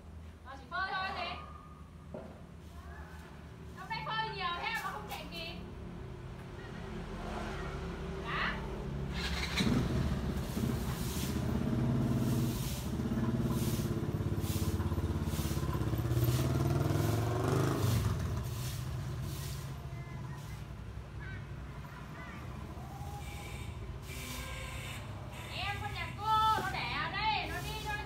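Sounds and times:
vehicle engine running: 9.0 - 20.7
broom swishing on tiles: 10.4 - 20.8, 24.0 - 24.6, 25.6 - 28.0.

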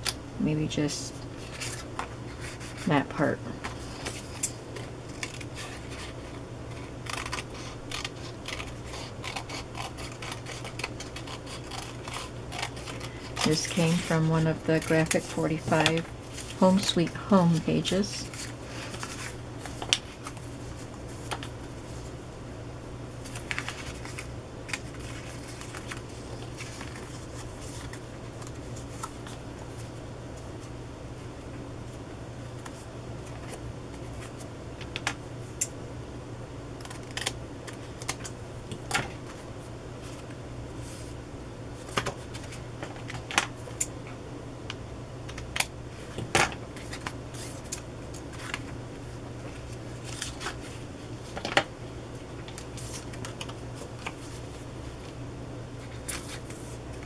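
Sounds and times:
steady low hum: 0.0 - 57.0
paper rustling: 3.6 - 22.1, 23.2 - 29.9, 49.4 - 51.6.

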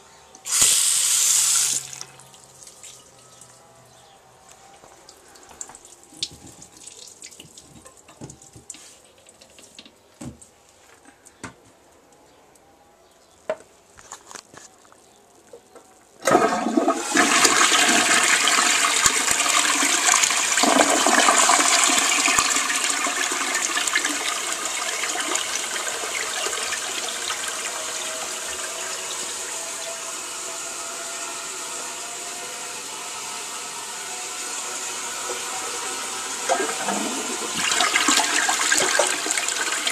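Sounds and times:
toilet flushing water rush: 16.2 - 39.9.

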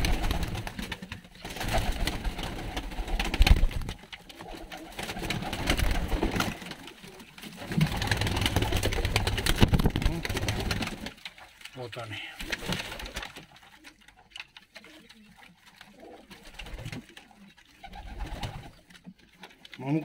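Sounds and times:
pigeons cooing: 0.0 - 11.1, 14.8 - 19.1.

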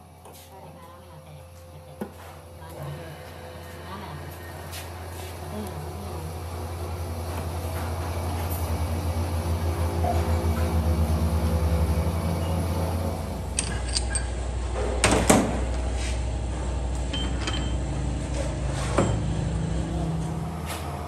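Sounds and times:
workshop machinery hum: 0.0 - 21.0
metal clanks of chuck key: 13.6 - 14.3.

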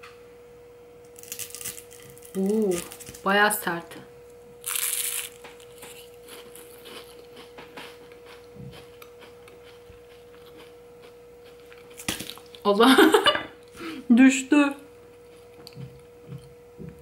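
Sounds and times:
faint steady hum: 0.0 - 17.0
crisp pastry crackling: 1.1 - 3.7, 4.6 - 7.5.

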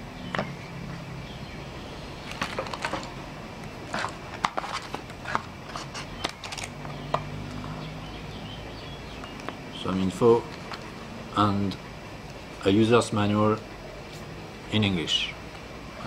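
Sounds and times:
paper rustling: 2.3 - 3.2, 3.8 - 6.8.

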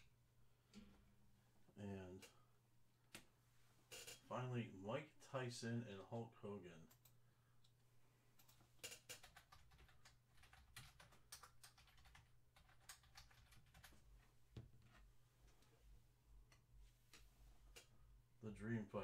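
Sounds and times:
typing on a keyboard: 8.4 - 14.0.

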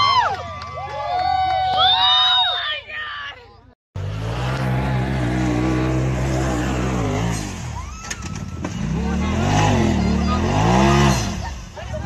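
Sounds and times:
vehicle engine running hard: 4.0 - 12.0.

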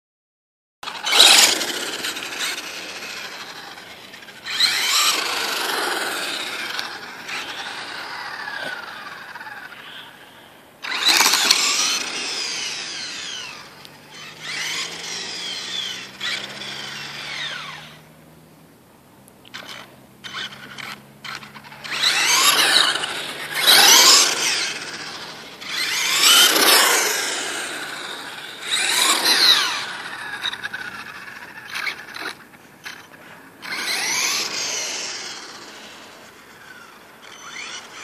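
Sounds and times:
rc truck motor whine: 0.8 - 18.5, 19.4 - 38.0.

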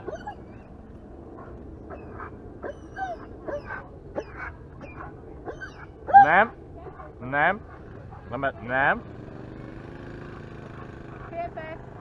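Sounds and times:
dogs whining and yipping: 0.0 - 7.1.

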